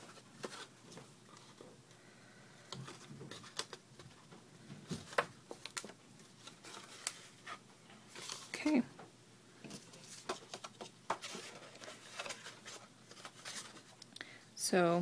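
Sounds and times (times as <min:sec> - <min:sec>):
paper rustling and tapping: 0:02.7 - 0:07.2, 0:09.6 - 0:14.0.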